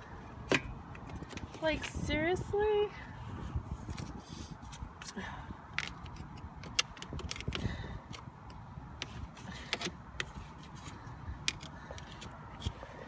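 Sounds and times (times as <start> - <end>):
stick scraping snow and metal: 9.0 - 13.0.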